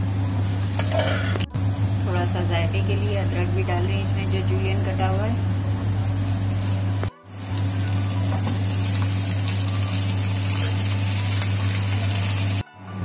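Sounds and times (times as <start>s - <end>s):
food sizzling in hot oil: 0.0s - 1.7s, 6.1s - 12.6s
low hum: 0.0s - 13.0s.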